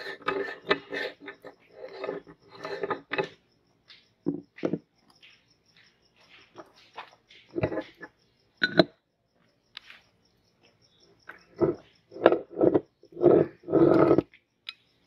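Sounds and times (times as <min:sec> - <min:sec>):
metal scraping and clicking: 0:00.0 - 0:03.4, 0:07.6 - 0:08.8, 0:11.4 - 0:14.3.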